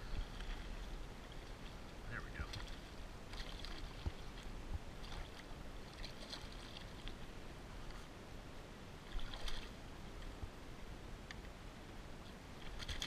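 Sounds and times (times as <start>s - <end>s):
water lapping against hull: 0.0s - 8.2s, 9.0s - 10.4s, 12.4s - 13.0s
steady low rumble: 0.0s - 12.8s
splashy rustles: 2.4s - 7.2s, 9.1s - 9.7s.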